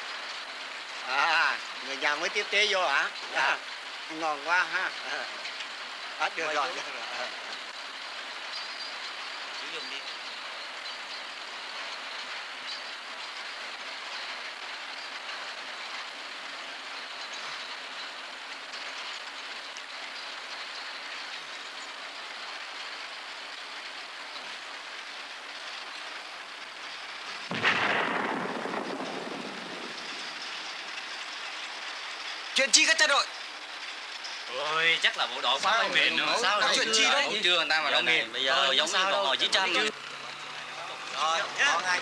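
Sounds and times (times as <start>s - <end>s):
steady rain: 0.0s - 42.0s
explosion: 27.4s - 31.2s.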